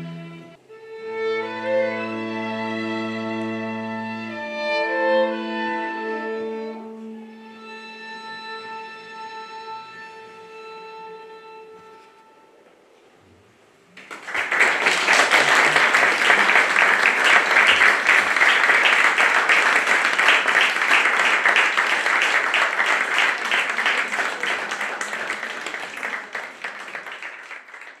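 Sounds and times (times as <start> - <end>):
audience applause: 14.0 - 28.0.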